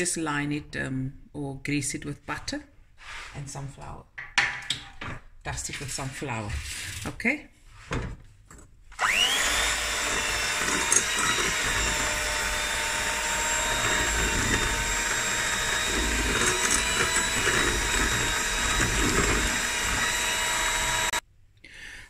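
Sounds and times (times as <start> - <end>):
electric hand mixer whine: 9.0 - 21.2.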